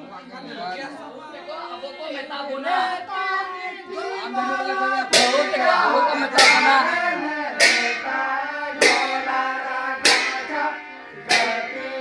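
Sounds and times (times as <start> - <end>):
group singing: 1.5 - 12.0
hand cymbals crashing: 5.1 - 12.0.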